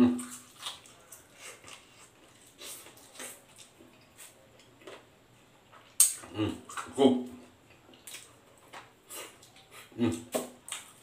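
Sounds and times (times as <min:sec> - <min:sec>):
chewing and mouth sounds: 0:00.0 - 0:05.1, 0:07.6 - 0:11.0.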